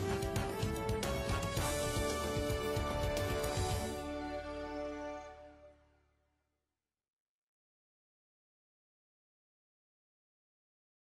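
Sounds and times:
background music sustained notes: 0.0s - 6.5s.

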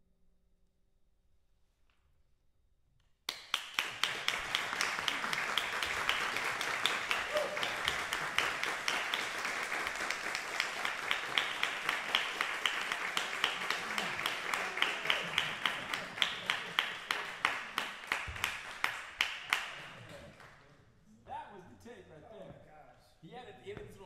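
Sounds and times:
audience applause: 3.3s - 20.7s.

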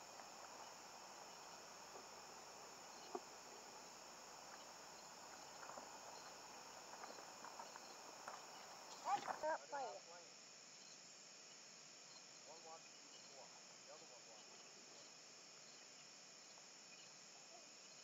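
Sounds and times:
faint ticks: 0.0s - 9.4s
high-pitched insect chirring: 0.0s - 10.0s.

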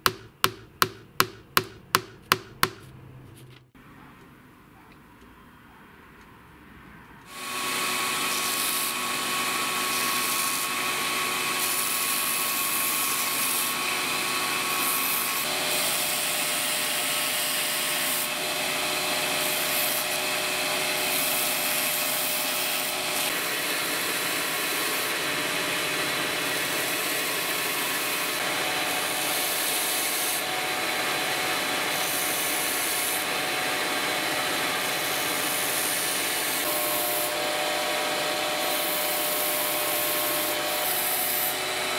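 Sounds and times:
belt grinder sanding wood: 7.3s - 13.8s, 31.1s - 41.9s
grinder machine whine: 22.8s - 41.9s.

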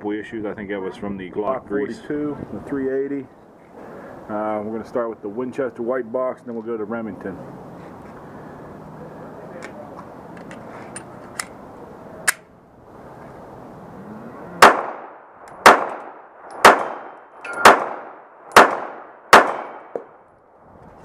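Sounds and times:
pistol metallic clicks: 9.6s - 11.6s, 12.2s - 12.5s, 14.6s - 20.1s
pistol shots: 14.6s - 20.2s.

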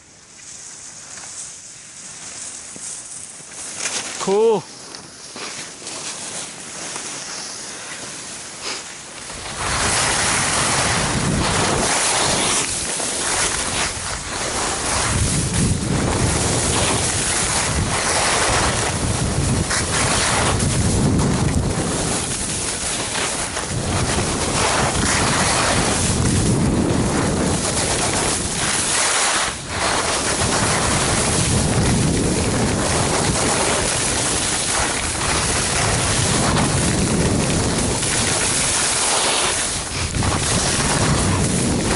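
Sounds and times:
skis scraping on packed snow: 0.3s - 41.9s
wind rushing over microphone: 9.3s - 41.9s.

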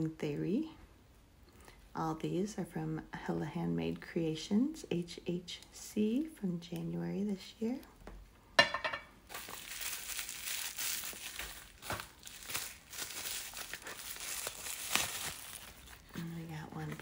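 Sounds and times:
wrapping material crinkling: 9.2s - 17.0s.

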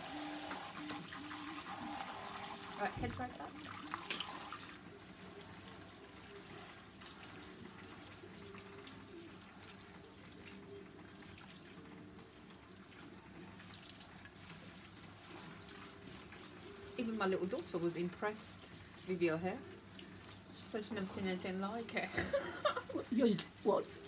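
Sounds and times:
shower spray running over hair: 0.0s - 10.8s.

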